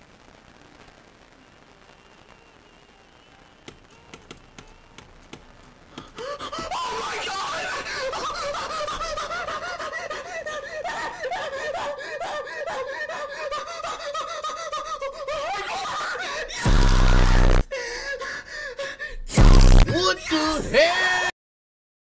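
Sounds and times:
person screaming: 0:06.2 - 0:17.7, 0:19.3 - 0:21.3
muffled giggling: 0:06.5 - 0:12.0
loud distorted buzzing blasts: 0:16.6 - 0:17.6, 0:19.3 - 0:19.9.

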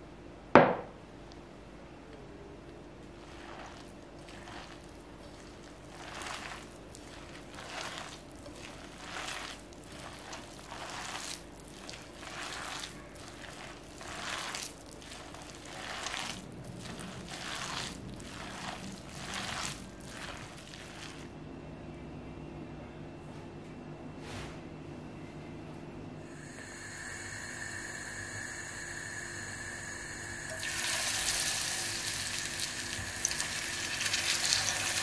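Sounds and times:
hand kneading wet dough squishing: 0:03.0 - 0:21.4, 0:30.6 - 0:35.0.

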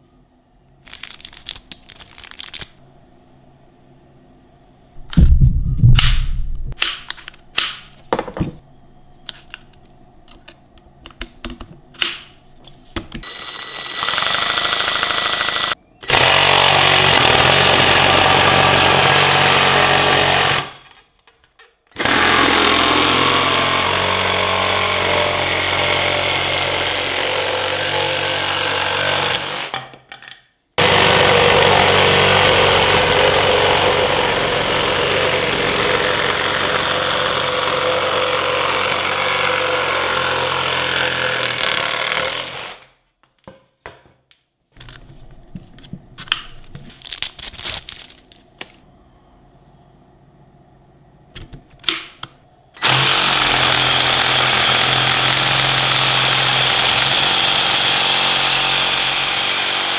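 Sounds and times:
sabre saw cutting wood: 0:13.2 - 0:20.8, 0:22.0 - 0:29.7, 0:30.8 - 0:42.9, 0:52.8 - 0:59.9.

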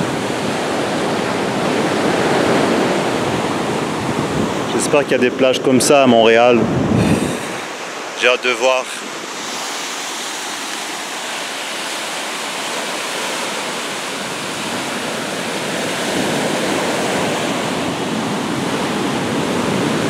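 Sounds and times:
ocean surf breaking on beach: 0:00.0 - 0:20.0.

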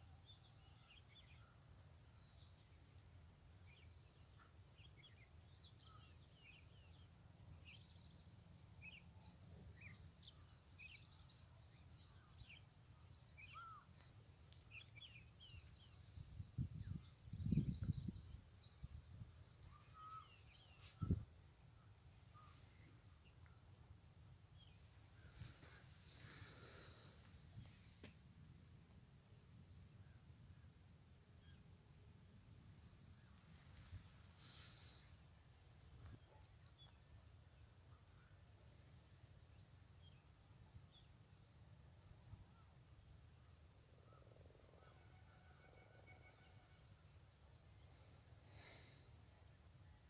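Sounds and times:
small birds chirping: 0:03.5 - 0:23.7, 0:33.0 - 0:41.2.

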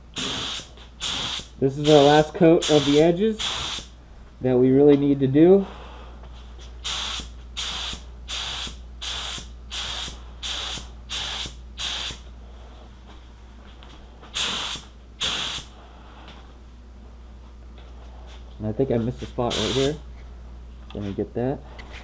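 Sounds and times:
spray gun hissing bursts: 0:00.2 - 0:04.0, 0:06.8 - 0:12.3, 0:14.3 - 0:15.8, 0:19.5 - 0:20.0.

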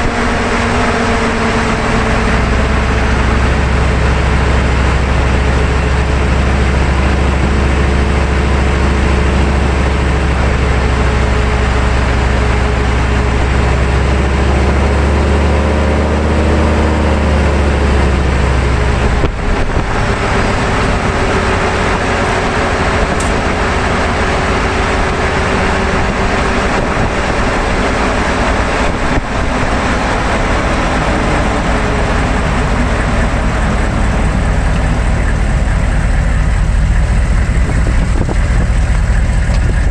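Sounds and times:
deep engine hum: 0:00.0 - 0:39.9
tyre and wind rush: 0:16.1 - 0:35.8, 0:37.1 - 0:39.9.

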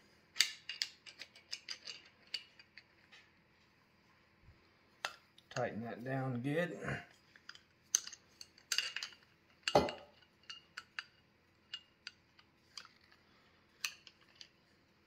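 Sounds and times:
wrench clinking on metal fittings: 0:00.4 - 0:02.8.

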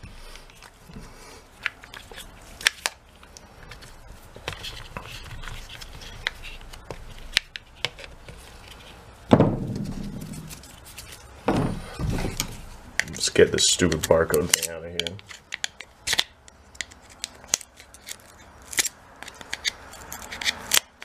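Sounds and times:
thump and rustle: 0:11.5 - 0:12.6.

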